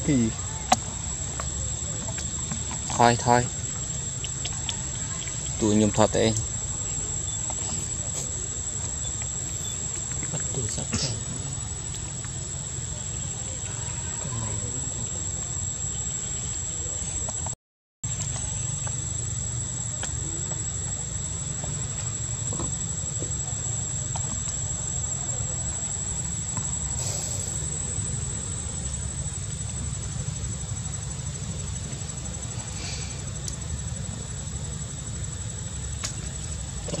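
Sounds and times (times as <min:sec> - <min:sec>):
insects droning: 0:00.0 - 0:37.0
brief hiss: 0:26.9 - 0:27.7, 0:32.6 - 0:33.3.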